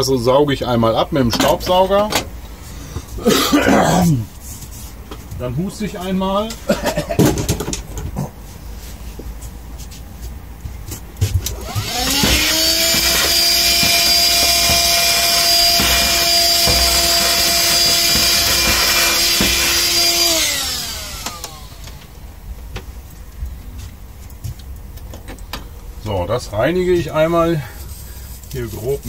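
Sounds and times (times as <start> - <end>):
handheld vacuum motor whine: 11.4 - 22.2.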